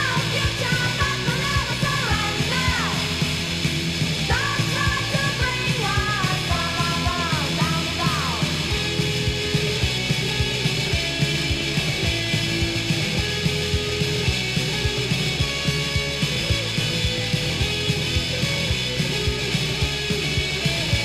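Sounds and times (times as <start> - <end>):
rock band playing: 0.0 - 21.0
steady drum beat: 0.0 - 21.0.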